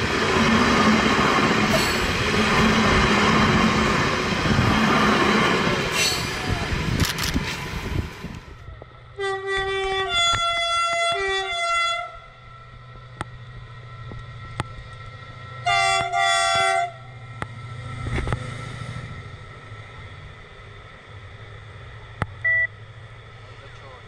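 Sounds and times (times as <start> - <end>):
locomotive engine rumble: 0.0 - 24.0
locomotive horn blasts: 9.1 - 12.4, 15.6 - 17.1.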